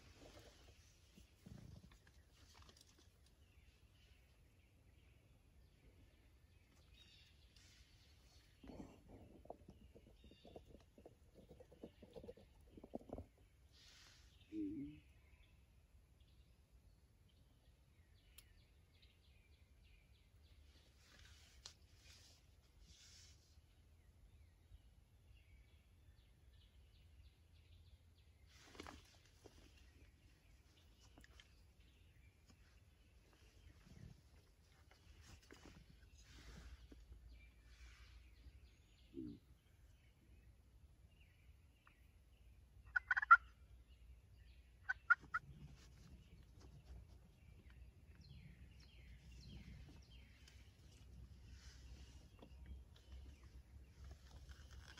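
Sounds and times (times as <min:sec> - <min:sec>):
distant songbird chirps: 0:00.0 - 0:54.9
turkey gobbling: 0:42.9 - 0:43.5, 0:44.9 - 0:45.4.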